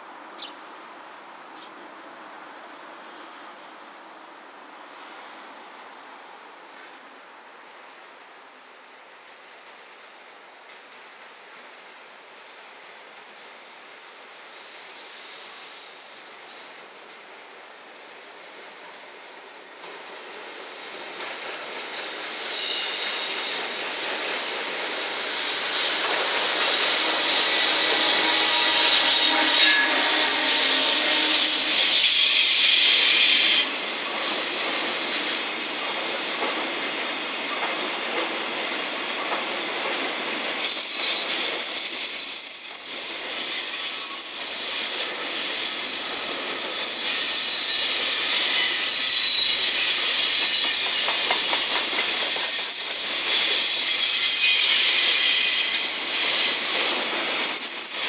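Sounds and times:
electric locomotive passing: 10.7 - 58.0
high wheel squeal: 21.8 - 36.4, 40.6 - 58.0
wheel-on-rail noise: 22.6 - 58.0.

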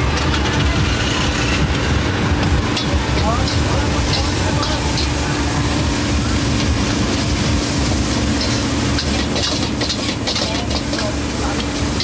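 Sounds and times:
spatula scraping a wok: 2.8 - 12.0.

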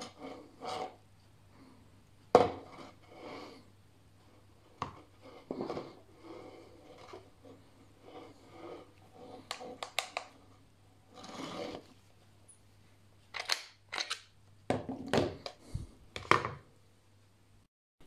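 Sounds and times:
parts set down on wooden table: 16.2 - 16.6.

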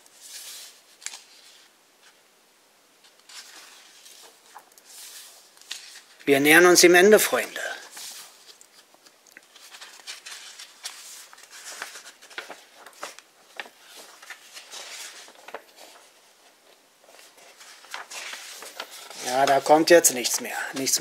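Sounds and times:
book pages turning: 0.0 - 2.2, 3.0 - 6.4, 7.3 - 21.0.

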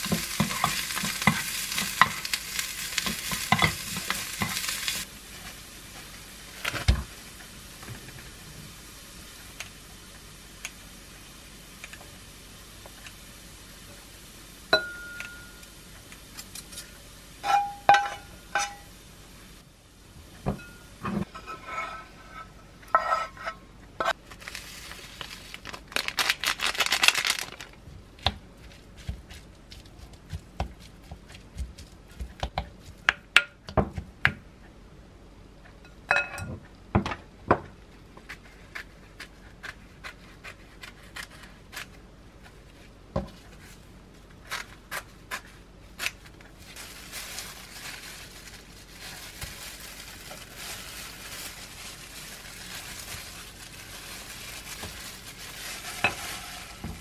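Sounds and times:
clinks against glass bowl: 14.7 - 15.6, 36.1 - 36.5
crinkly plastic rustling: 24.2 - 31.0, 42.7 - 57.0
carrots scraped from frying pan: 52.6 - 57.0.

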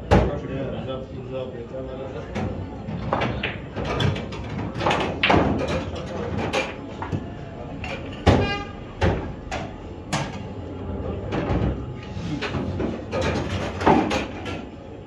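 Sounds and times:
faint murmur of voices: 0.0 - 15.0
pool balls knocking: 2.4 - 7.3, 11.2 - 14.7.

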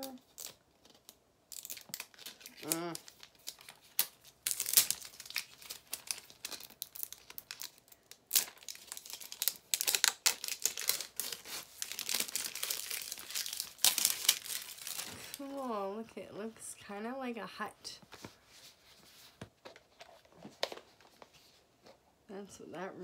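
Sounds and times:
plastic wrapper crinkling and tearing: 0.0 - 15.7.

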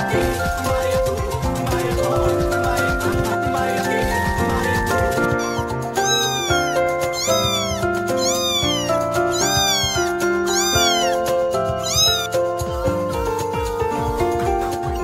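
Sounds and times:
background music: 0.0 - 15.0
kitten meowing: 5.2 - 14.2.

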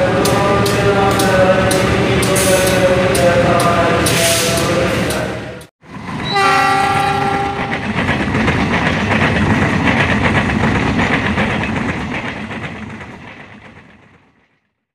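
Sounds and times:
train wheels clattering over rail joints: 6.0 - 14.6
locomotive horn blast: 6.3 - 7.8.

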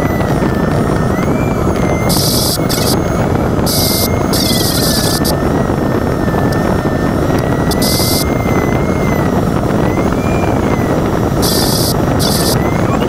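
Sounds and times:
air rushing over glider canopy: 0.0 - 13.0
electronic variometer tone: 0.0 - 13.0
high hiss bursts: 11.4 - 12.6.

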